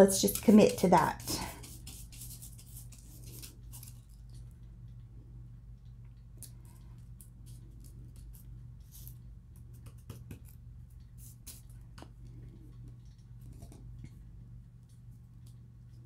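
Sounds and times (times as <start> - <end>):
paper rustling and scratching: 0.0 - 4.2
steady low hum: 0.0 - 16.0.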